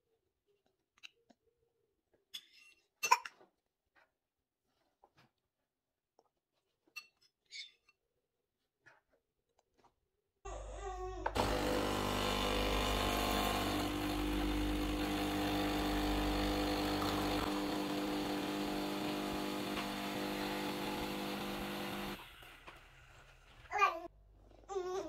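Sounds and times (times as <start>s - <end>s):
coffee machine pump humming: 11.3s - 22.2s
coffee pouring into cup: 11.4s - 22.2s.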